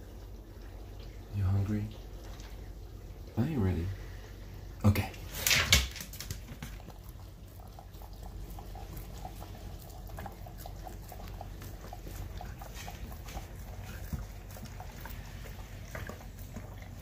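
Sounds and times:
dog chewing wet food: 5.9s - 17.0s.

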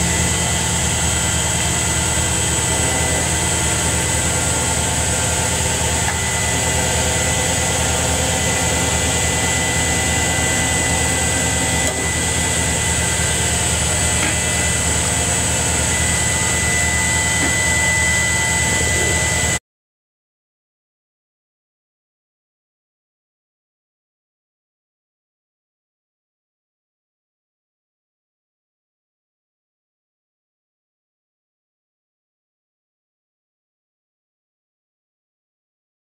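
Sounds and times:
high-pitched machine whines: 0.0s - 19.6s
lathe machine hum: 0.0s - 19.6s.

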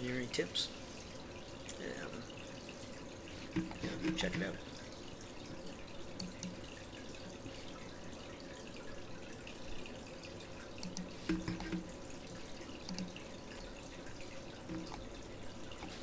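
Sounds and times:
faint clicks: 6.2s - 6.6s, 10.8s - 11.8s, 12.8s - 13.2s.

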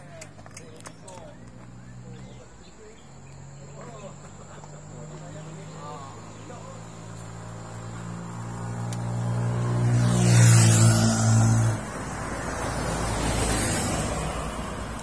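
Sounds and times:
vehicle road noise: 0.0s - 15.0s
motorcycle riding past: 3.5s - 15.0s.

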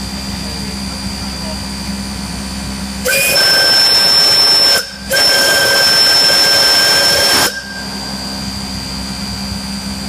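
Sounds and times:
steam whistle blasts: 3.0s - 8.6s.

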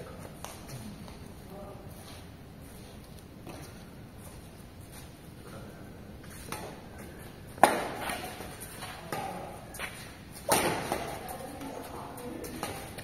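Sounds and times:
badminton racket hitting shuttlecock: 7.5s - 13.0s.

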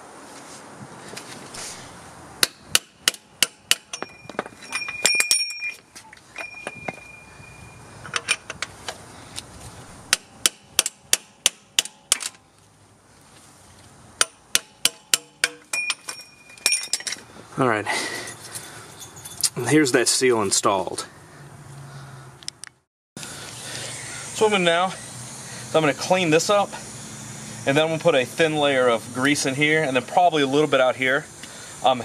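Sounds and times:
hammer striking metal: 2.4s - 5.8s, 10.1s - 12.3s, 14.2s - 17.2s.

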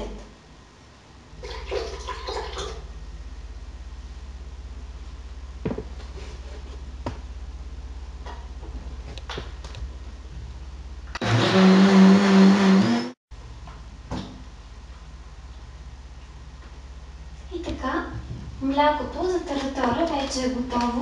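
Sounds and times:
blender running: 11.2s - 13.2s.

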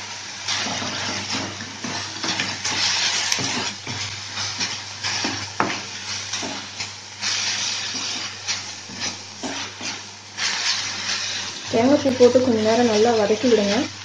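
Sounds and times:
light sizzle: 0.0s - 14.0s.

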